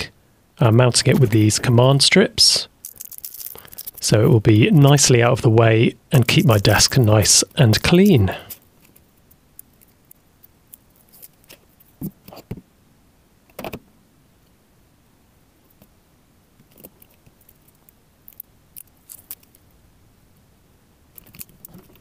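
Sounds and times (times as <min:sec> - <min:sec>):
soft crackling of adhesive strips: 0:02.7 - 0:05.1, 0:08.0 - 0:12.4, 0:16.6 - 0:19.8, 0:21.1 - 0:22.0
small plastic clicks and crackles: 0:02.8 - 0:04.0, 0:08.5 - 0:12.4, 0:16.6 - 0:19.7, 0:21.1 - 0:22.0.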